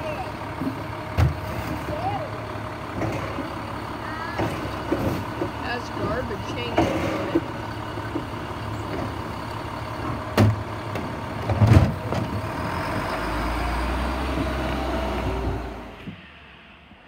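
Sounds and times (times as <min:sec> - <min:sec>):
deep low engine drone: 0:00.0 - 0:17.0
garbage truck running: 0:00.0 - 0:17.0
loud knocks of cart: 0:06.4 - 0:09.2, 0:10.3 - 0:12.4
hydraulic arm: 0:06.6 - 0:09.1.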